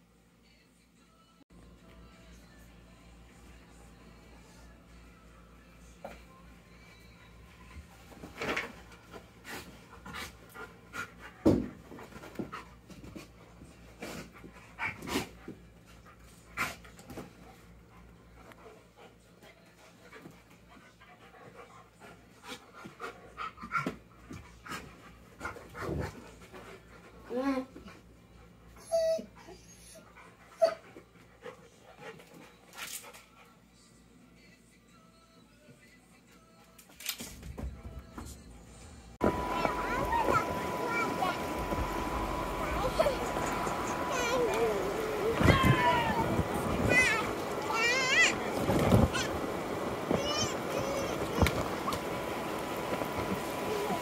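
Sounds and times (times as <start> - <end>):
puppy whimpering and whining: 28.8 - 30.9.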